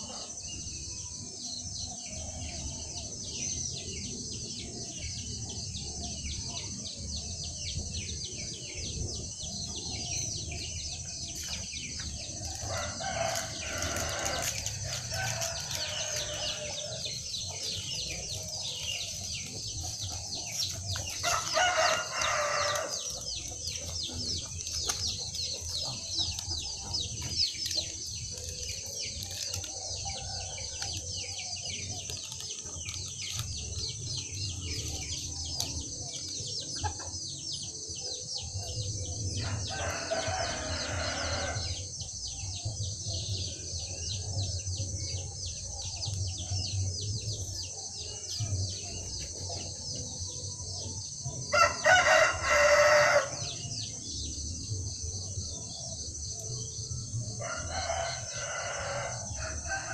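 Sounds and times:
small birds chirping: 0:00.0 - 0:59.9
rooster crowing: 0:12.4 - 0:17.8, 0:21.2 - 0:23.5, 0:39.4 - 0:41.8, 0:51.5 - 0:53.6, 0:57.4 - 0:59.9.

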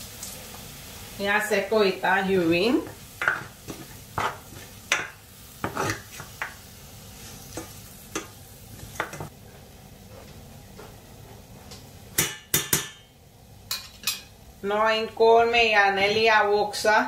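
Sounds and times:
soft sizzle from a hot pan: 0:00.0 - 0:17.0
spatula scraping in a frying pan: 0:02.8 - 0:09.2.

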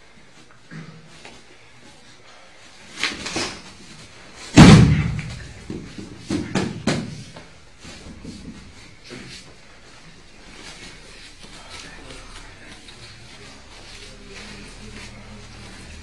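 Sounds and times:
body thudding on mat: 0:04.5 - 0:07.3
sharp slaps: 0:04.6 - 0:07.2.

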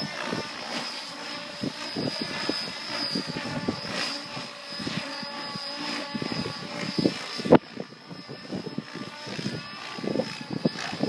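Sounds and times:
rc helicopter whine: 0:00.0 - 0:11.0
wind buffeting microphone: 0:00.0 - 0:11.0.

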